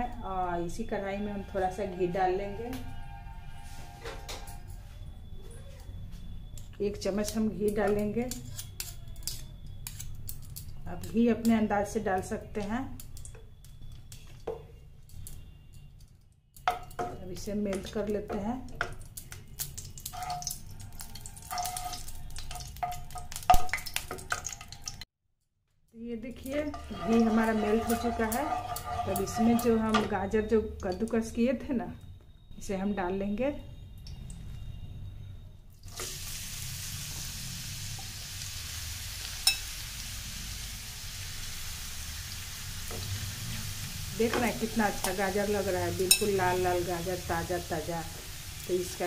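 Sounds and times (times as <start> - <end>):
ghee sizzling: 16.6 - 25.1, 26.2 - 31.2, 35.8 - 49.0
spatula scraping pan: 26.5 - 30.1.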